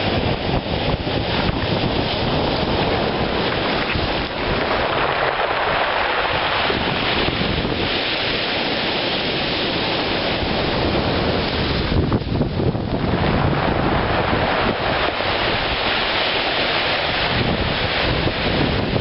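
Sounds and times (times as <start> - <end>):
surf on cobble beach: 0.0 - 19.0
wind buffeting microphone: 0.0 - 19.0
stones tumbling in backwash: 1.4 - 8.5.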